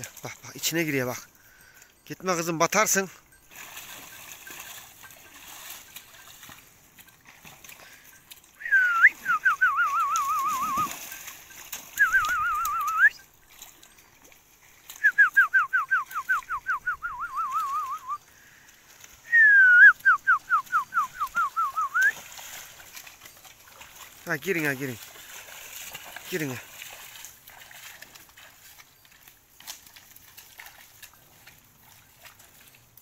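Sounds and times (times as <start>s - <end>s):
person whistling trilling calls: 8.6s - 11.0s, 11.9s - 13.3s, 14.9s - 18.3s, 19.2s - 22.3s.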